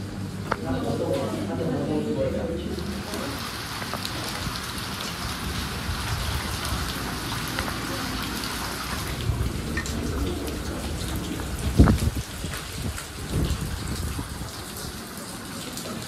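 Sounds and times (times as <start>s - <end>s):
heavy rain on water: 0.0s - 16.0s
low rumbles: 4.0s - 14.6s.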